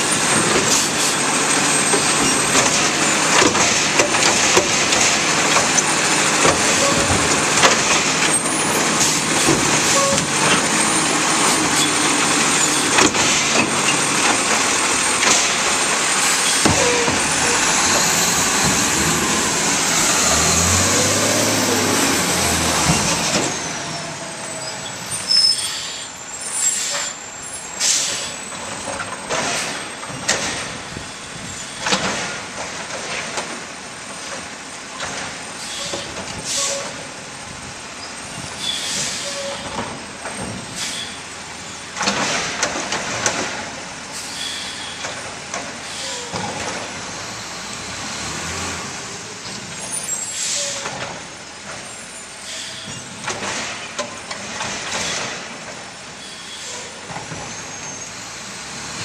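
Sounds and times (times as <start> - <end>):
truck arm clanking and banging: 0.0 - 25.3, 28.6 - 33.6, 38.4 - 40.9, 41.9 - 43.8, 52.8 - 55.9
garbage truck engine running: 0.0 - 25.4
air brakes hissing: 15.4 - 28.5, 35.6 - 37.1, 38.5 - 39.8, 40.6 - 42.6, 44.1 - 45.2, 45.8 - 47.7, 49.8 - 51.0, 51.8 - 53.9, 56.2 - 58.2.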